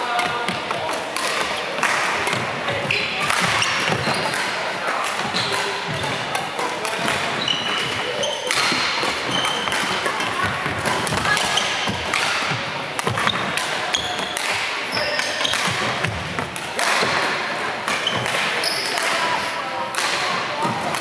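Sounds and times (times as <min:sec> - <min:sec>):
indistinct chatter: 0:00.0 - 0:21.0
racket hitting shuttlecock: 0:00.2 - 0:02.5, 0:03.2 - 0:19.3, 0:19.9 - 0:21.0
shoes squeaking on wooden floor: 0:02.9 - 0:04.4, 0:07.4 - 0:08.6.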